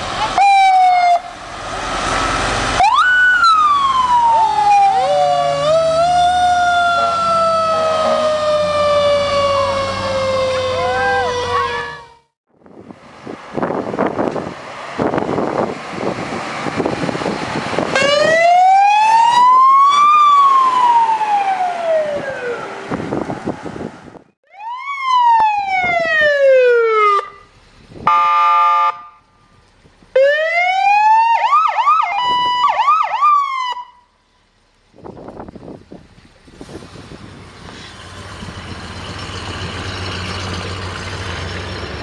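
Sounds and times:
fire truck engine: 0.0s - 42.0s
siren wailing: 0.2s - 1.3s, 2.8s - 12.3s, 17.9s - 23.0s, 24.5s - 27.5s, 28.1s - 29.2s, 30.2s - 34.1s
siren yelping: 0.2s - 1.3s, 2.8s - 12.3s, 17.9s - 22.9s, 24.5s - 27.5s, 30.2s - 34.1s
wind noise: 12.5s - 19.6s, 21.9s - 24.4s, 32.1s - 32.8s, 34.9s - 40.0s
vehicle horn: 28.1s - 29.2s.

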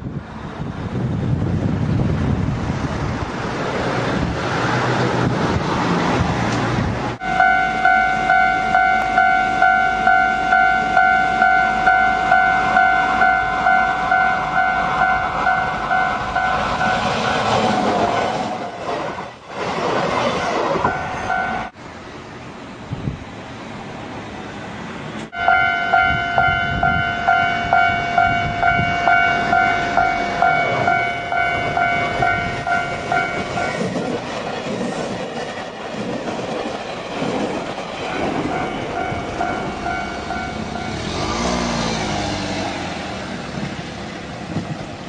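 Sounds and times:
train passing rush: 0.0s - 45.0s
level-crossing electronic bell: 7.2s - 17.1s, 20.9s - 21.7s, 25.4s - 33.8s, 38.1s - 41.1s.

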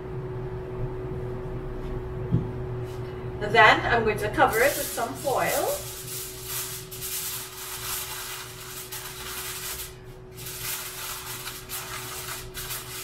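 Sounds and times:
aluminium foil crinkling: 4.5s - 13.0s.

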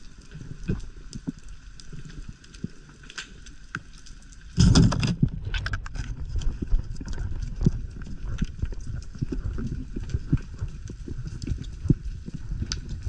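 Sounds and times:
low rumble of water: 0.0s - 13.0s
underwater clicks and knocks: 4.5s - 13.0s.

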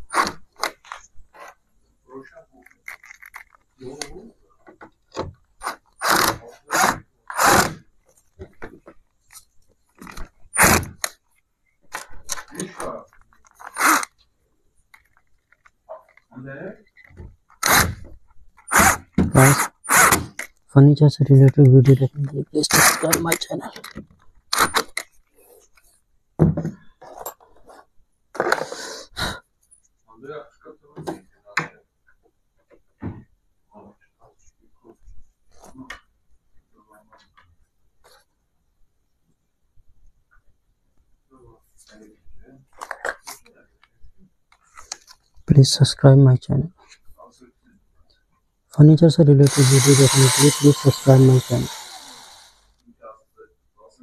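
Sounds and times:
cordless drill driving screws: 6.0s - 7.8s, 17.6s - 18.0s, 18.7s - 20.4s, 22.7s - 23.3s, 49.4s - 52.8s
knocks and clunks on wooden door: 26.4s - 26.8s.

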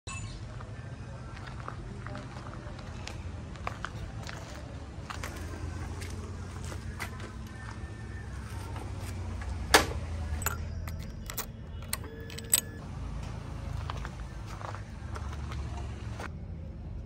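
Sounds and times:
key clicking in ignition: 10.4s - 12.8s
keys jangling: 10.4s - 12.8s.

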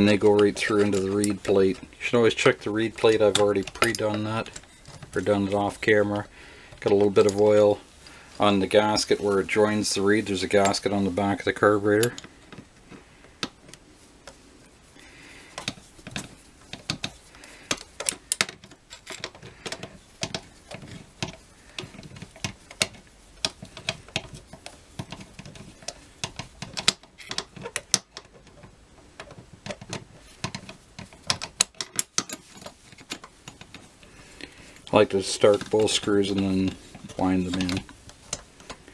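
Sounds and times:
screwdriver clicking on metal screws: 0.0s - 6.2s, 15.5s - 38.9s.

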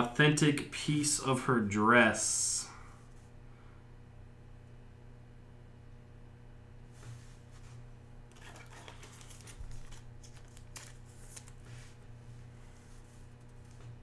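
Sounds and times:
thin plastic crinkling: 8.3s - 12.0s.

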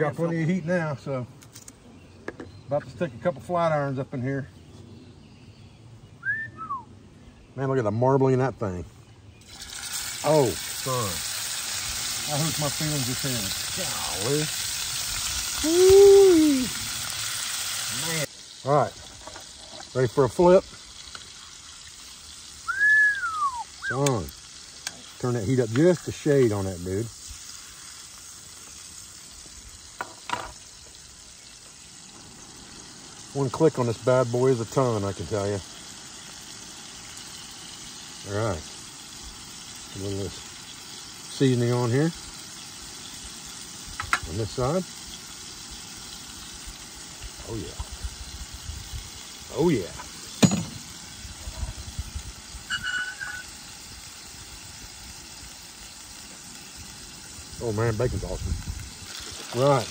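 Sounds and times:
steak sizzling in a skillet: 9.4s - 59.9s
short high chirp: 52.7s - 53.5s.

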